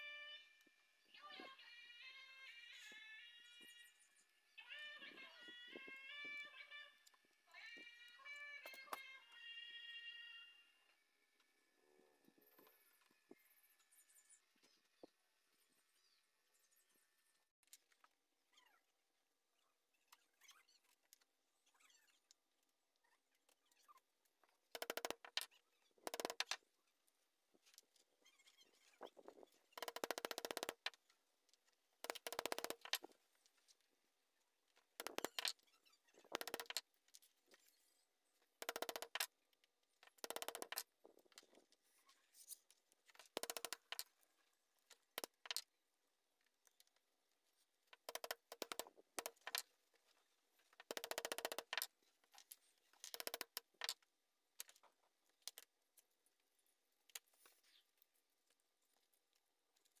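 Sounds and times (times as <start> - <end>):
small hammer tapping metal: 38.6 - 39.3.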